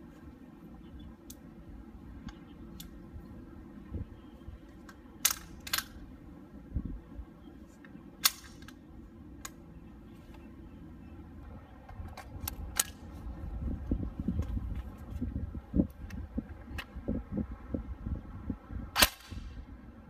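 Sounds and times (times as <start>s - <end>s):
airsoft rifle mechanical clicks: 4.7s - 6.0s, 7.8s - 8.8s.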